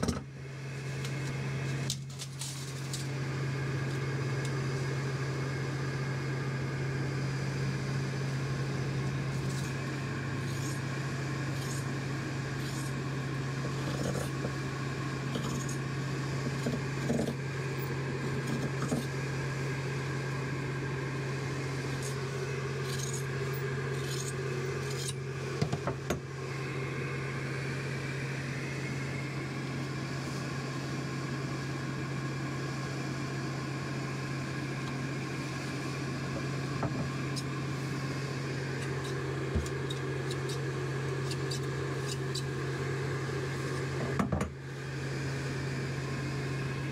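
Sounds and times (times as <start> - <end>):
blower motor humming: 0.0 - 46.9.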